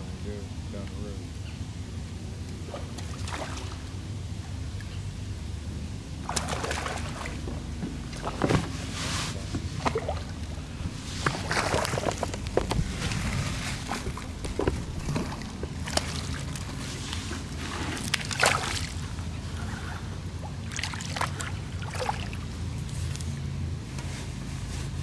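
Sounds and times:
low steady hum: 0.0 - 25.0
fish splashing in water: 2.7 - 4.0, 6.2 - 8.9, 9.6 - 19.6, 20.4 - 22.8.

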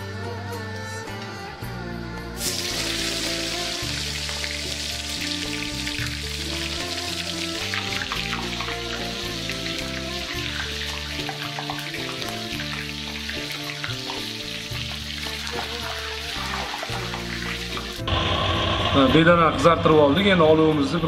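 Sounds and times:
background music: 0.0 - 21.0
oil sizzling and crackling: 2.4 - 18.1.

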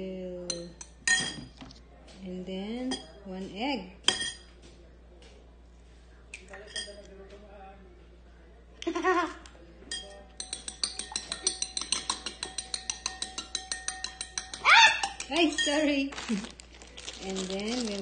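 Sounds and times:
spoon clinking against glass bowl: 0.5 - 1.6, 4.1 - 4.5, 6.6 - 7.1, 9.9 - 16.0.

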